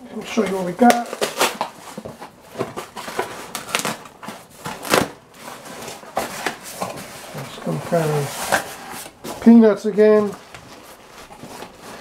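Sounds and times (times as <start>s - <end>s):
cardboard flaps scraping and crinkling: 0.2s - 12.0s
tape ripping off cardboard box: 0.8s - 2.0s, 2.8s - 6.6s.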